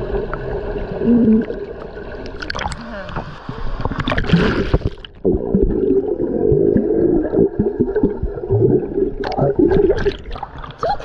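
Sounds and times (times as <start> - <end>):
muffled underwater pool sound: 0.0 - 4.1
swimmer blowing bubbles: 1.0 - 1.6, 3.9 - 11.0
water splash: 2.2 - 8.2.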